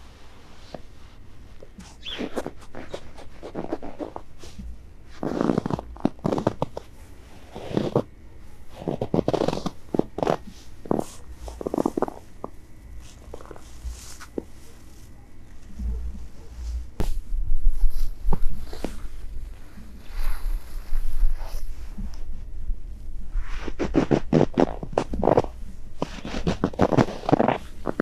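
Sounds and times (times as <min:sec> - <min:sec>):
boots crunching in snow: 0:05.2 - 0:06.7, 0:07.5 - 0:08.0, 0:08.8 - 0:15.1.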